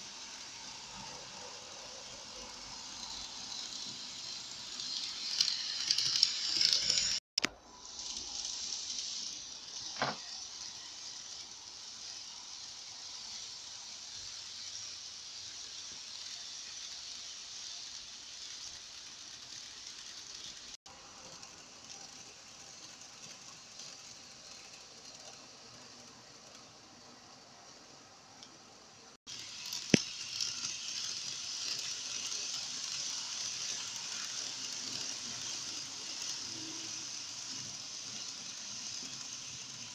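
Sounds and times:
model train motors and wheels: 0:00.0 - 0:39.9
click: 0:07.4 - 0:07.6.

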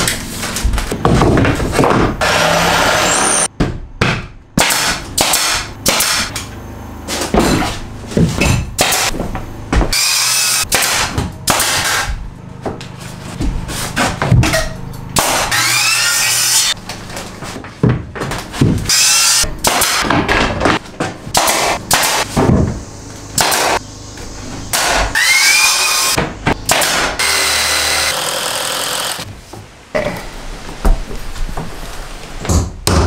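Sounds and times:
pneumatic nailer firing: 0:01.8 - 0:03.5, 0:04.6 - 0:06.4, 0:08.8 - 0:09.2, 0:09.9 - 0:12.2, 0:15.2 - 0:16.8, 0:18.8 - 0:20.1, 0:21.3 - 0:22.6, 0:23.4 - 0:23.8, 0:24.7 - 0:29.3.

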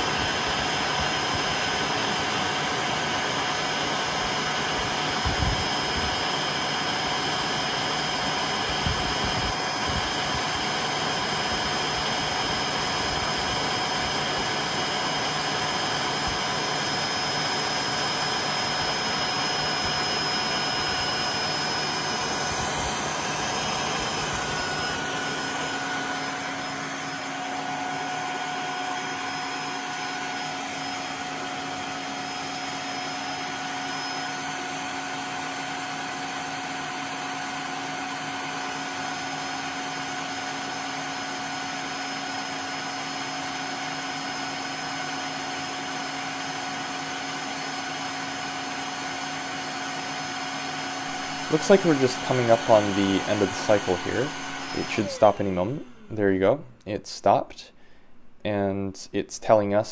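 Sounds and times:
vacuum motor running: 0:00.0 - 0:56.9.

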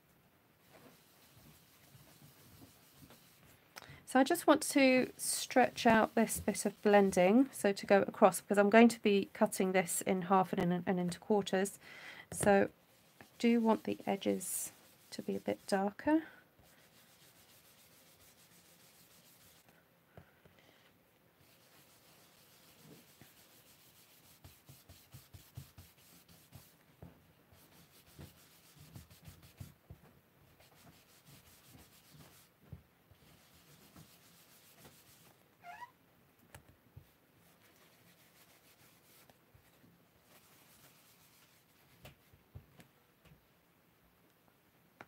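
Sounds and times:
brush scrubbing on cardstock: 0:00.6 - 0:03.5, 0:04.2 - 0:07.4, 0:12.4 - 0:19.7, 0:21.4 - 0:26.8, 0:27.5 - 0:29.8, 0:30.5 - 0:32.5, 0:33.2 - 0:35.4, 0:37.4 - 0:42.0
rising squeak: 0:35.6 - 0:36.0
soft taps and clicks: 0:42.0 - 0:43.4.

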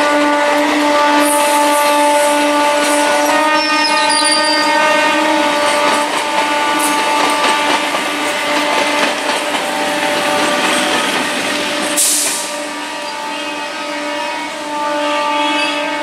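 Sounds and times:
train wheels on rails: 0:00.0 - 0:14.7
short loud hiss: 0:12.0 - 0:12.6.

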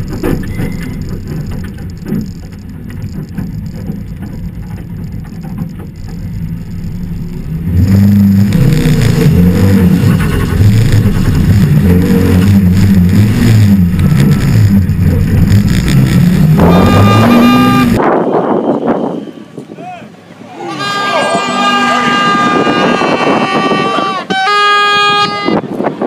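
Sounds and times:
rally car engine revving: 0:00.0 - 0:18.0.

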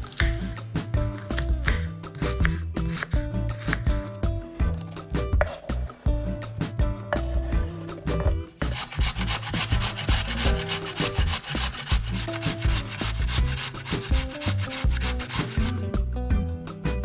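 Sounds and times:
potatoes grated on metal grater: 0:08.6 - 0:15.9.

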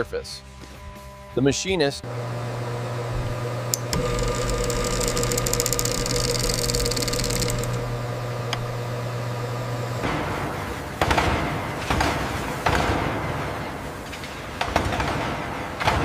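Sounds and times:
machine tool humming and whining: 0:02.0 - 0:11.0
fast high ticks: 0:04.0 - 0:07.9.

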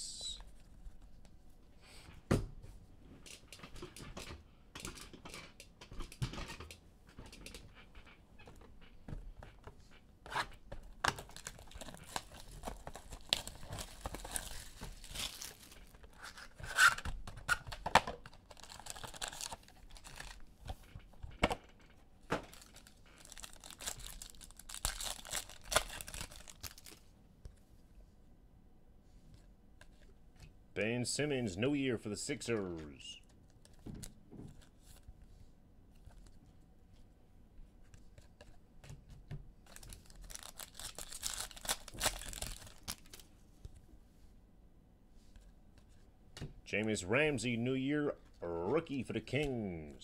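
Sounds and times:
foil wrappers tearing and crinkling: 0:11.1 - 0:17.0, 0:18.4 - 0:20.4, 0:22.5 - 0:27.0, 0:39.7 - 0:43.2.

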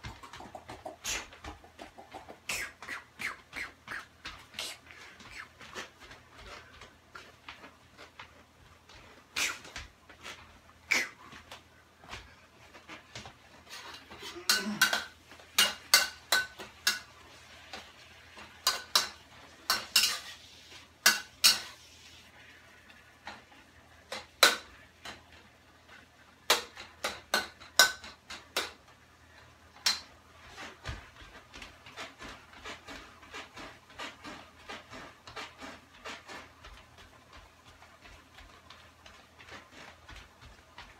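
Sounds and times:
metal spatula scraping frying pan: 0:18.5 - 0:22.0.

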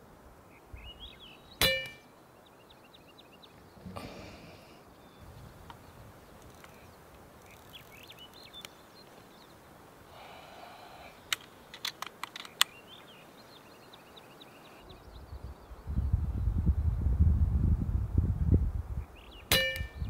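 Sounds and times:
faint birdsong: 0:00.0 - 0:17.1, 0:18.6 - 0:20.0
air rifle mechanical clicks: 0:11.2 - 0:12.8.

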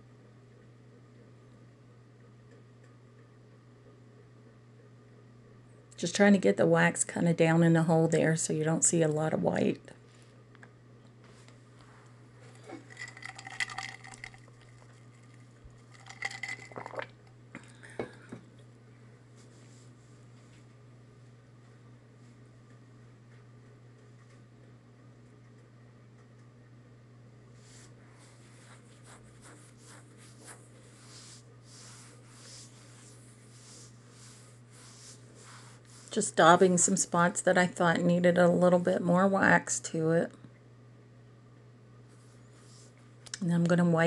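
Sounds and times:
foam dauber dabbing and scraping: 0:27.6 - 0:36.6.

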